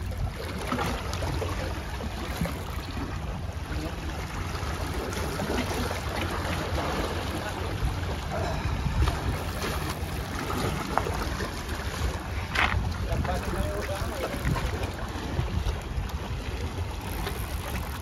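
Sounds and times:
wind buffeting microphone: 6.8 - 18.0
small waves washing against rocks: 8.9 - 18.0.

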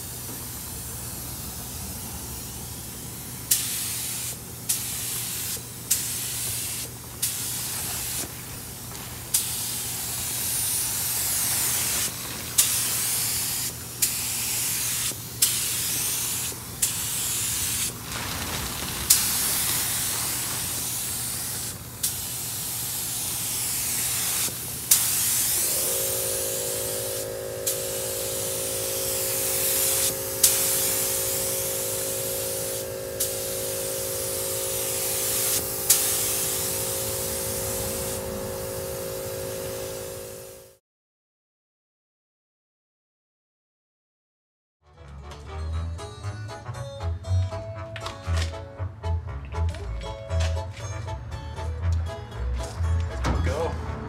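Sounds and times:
paint spray gun hissing: 0.0 - 18.0, 19.0 - 40.8
steady hum: 25.6 - 40.8.

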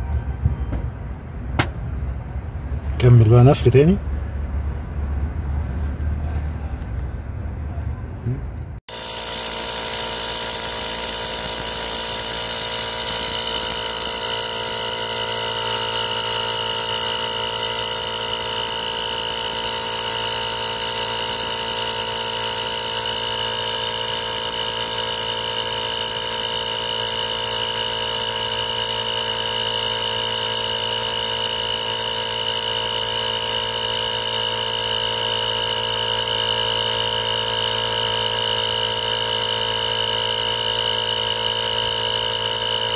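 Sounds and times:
tyre inflator compressor running: 8.8 - 42.9.

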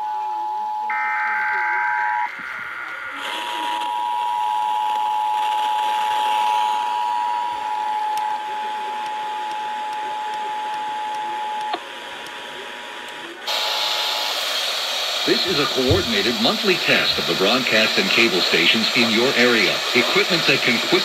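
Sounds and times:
radio hiss: 2.2 - 21.0
click: 9.0 - 12.4
radio static: 15.2 - 21.0.

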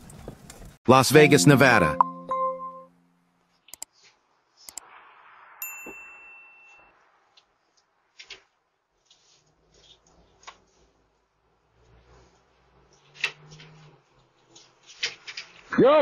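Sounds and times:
high ringing ding: 5.6 - 6.9.

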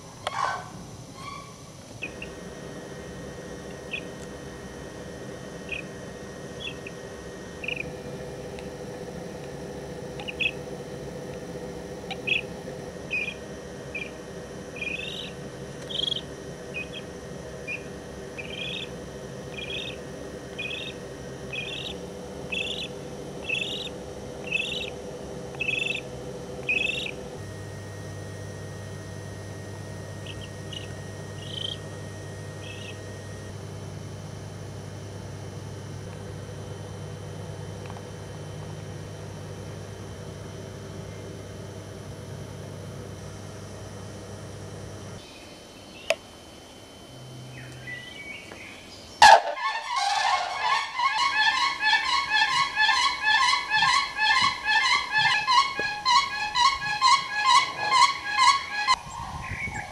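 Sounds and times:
steady low hum: 0.0 - 59.9
chick peeping: 5.7 - 5.9, 6.6 - 7.0, 7.6 - 7.9, 10.2 - 10.6, 12.1 - 12.5, 13.1 - 14.2, 14.8 - 17.1, 17.7 - 20.0, 20.6 - 27.2, 30.2 - 31.8, 32.6 - 33.0, 49.2 - 59.9.

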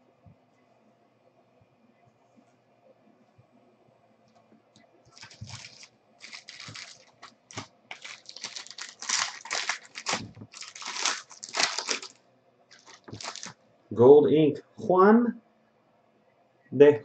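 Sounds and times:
card wrappers crinkling and tearing: 5.1 - 13.6.

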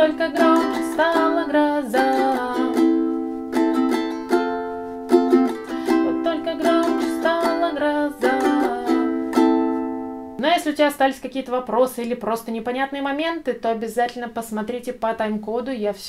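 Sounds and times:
ukulele strumming chords: 0.0 - 10.4.

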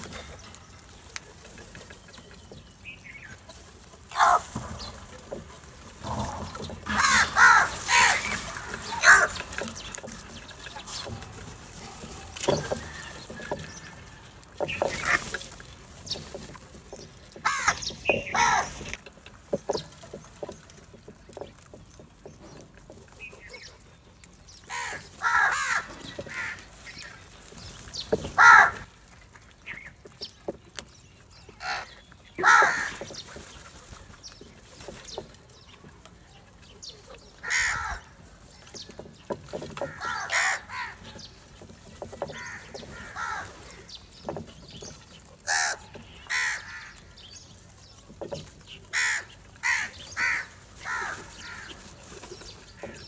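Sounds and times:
crows cawing: 4.1 - 4.6, 6.0 - 9.7, 17.4 - 18.9, 24.7 - 26.7, 28.2 - 28.9, 31.6 - 33.2, 37.4 - 38.2, 39.8 - 41.2, 42.2 - 43.9, 45.4 - 47.2, 48.9 - 51.8.

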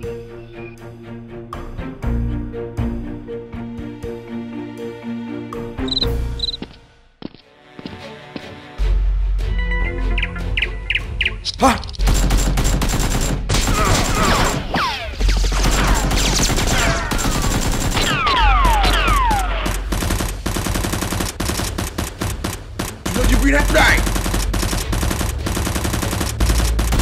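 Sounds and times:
automatic gunfire: 12.0 - 14.7, 15.3 - 27.0.

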